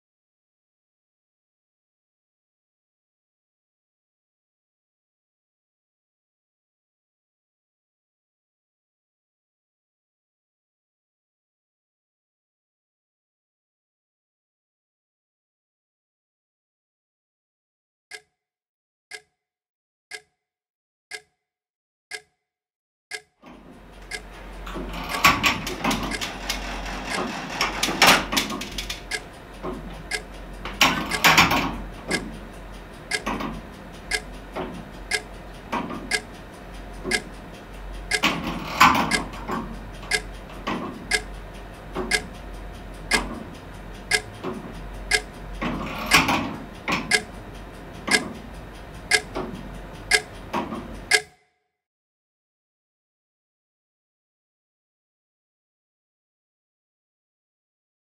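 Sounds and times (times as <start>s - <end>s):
clock ticking: 18.1s - 18.3s, 19.1s - 19.3s, 20.1s - 20.3s, 21.1s - 21.3s, 22.1s - 22.3s, 23.1s - 51.4s.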